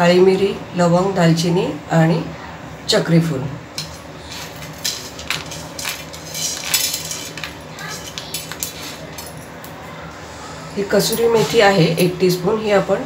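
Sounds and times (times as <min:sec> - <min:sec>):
spices rattling onto pan: 0:03.8 - 0:09.6.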